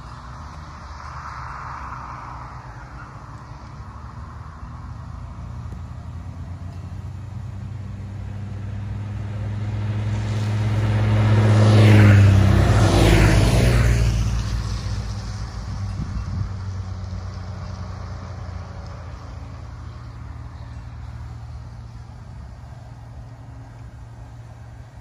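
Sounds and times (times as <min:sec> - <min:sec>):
motorcycles passing by: 0:00.0 - 0:25.0.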